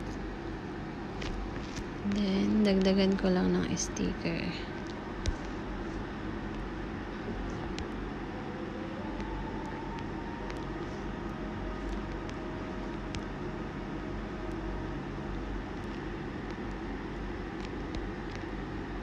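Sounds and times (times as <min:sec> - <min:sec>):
low hum and hiss: 0:00.0 - 0:19.0.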